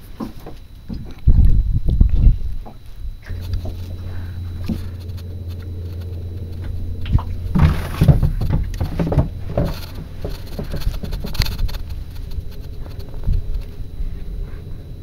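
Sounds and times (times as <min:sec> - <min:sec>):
boat engine idling: 0:03.2 - 0:15.0.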